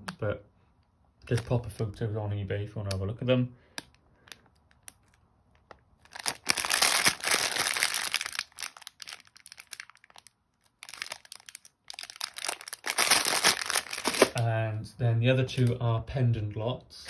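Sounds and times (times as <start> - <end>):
plastic bag crinkling: 4.5 - 14.4.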